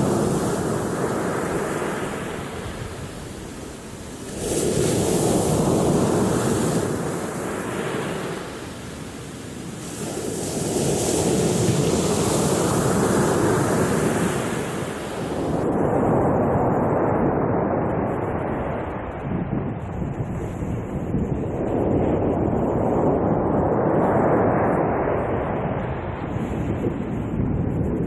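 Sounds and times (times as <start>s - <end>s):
waves breaking on pebble beach: 0.0s - 15.6s.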